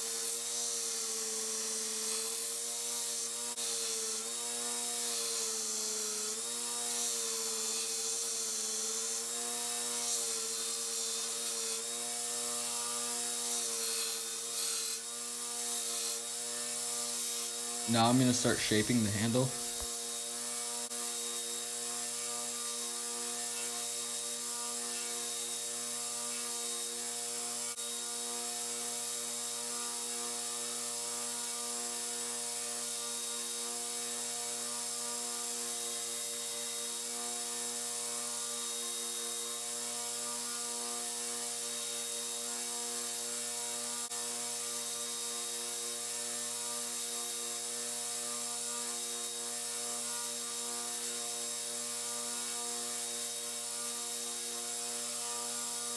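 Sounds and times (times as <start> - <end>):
belt grinder motor hum: 0.0 - 28.4
abrasive belt hissing: 17.9 - 19.9.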